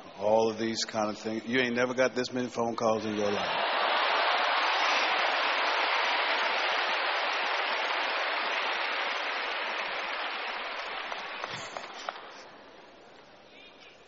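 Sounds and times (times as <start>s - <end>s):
crowd applauding: 3.1s - 12.7s.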